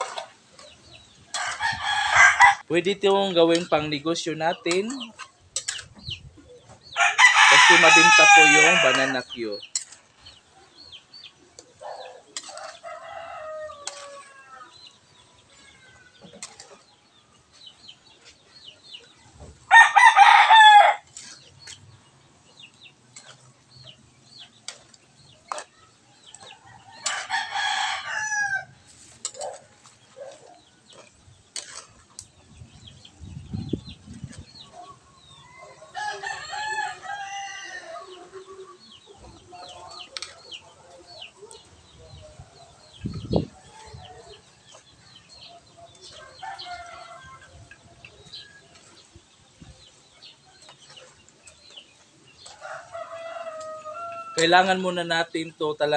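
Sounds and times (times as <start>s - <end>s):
metal spatula scraping a wok: 0.0s - 1.8s, 4.8s - 6.1s, 8.4s - 10.4s, 12.3s - 16.9s, 21.1s - 21.9s, 23.0s - 27.3s, 28.8s - 32.2s
chickens clucking: 0.0s - 19.8s, 20.6s - 54.8s
rooster crowing: 1.4s - 2.6s, 7.0s - 9.2s, 12.8s - 14.7s, 19.7s - 21.1s, 26.6s - 28.7s, 35.3s - 38.3s, 46.2s - 47.5s, 52.6s - 54.4s.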